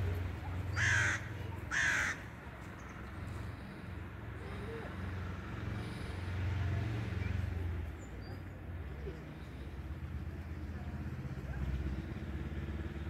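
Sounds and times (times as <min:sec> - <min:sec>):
crow cawing: 0:00.7 - 0:02.3.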